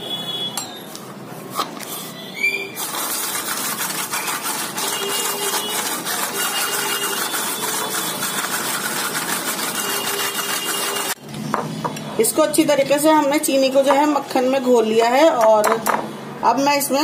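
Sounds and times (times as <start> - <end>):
electric hand mixer whirring: 2.8 - 11.2.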